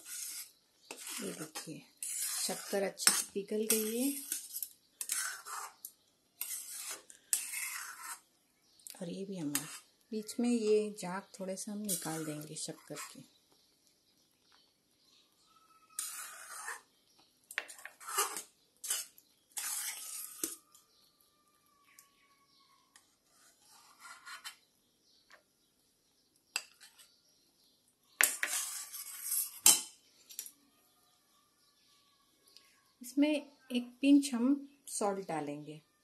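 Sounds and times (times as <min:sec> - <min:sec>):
spatula scraping steel pan: 0:00.0 - 0:08.3, 0:09.4 - 0:09.9, 0:11.8 - 0:13.2, 0:15.9 - 0:16.9, 0:17.6 - 0:20.7, 0:23.0 - 0:24.6, 0:28.2 - 0:30.0.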